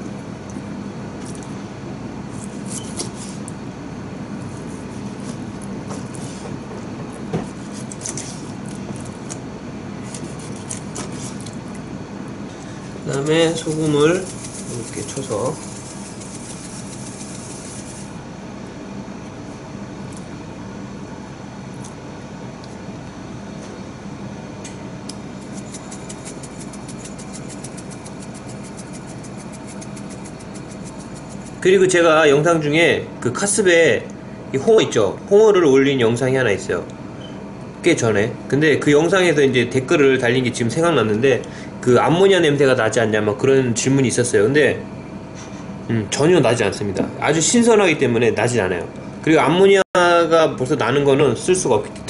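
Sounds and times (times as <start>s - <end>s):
low mechanical hum: 0.0s - 52.0s
salt grains ticking: 13.1s - 18.0s, 25.4s - 31.6s.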